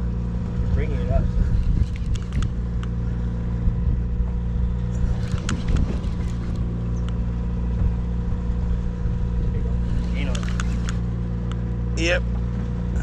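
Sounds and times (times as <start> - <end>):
boat engine humming: 0.0 - 13.0
light clicks: 1.6 - 3.0, 10.3 - 11.6.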